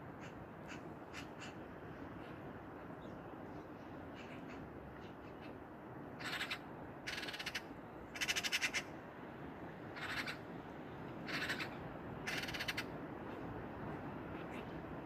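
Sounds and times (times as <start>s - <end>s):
magpie harsh rattling calls: 6.2s - 8.9s, 10.0s - 10.4s, 11.3s - 12.9s.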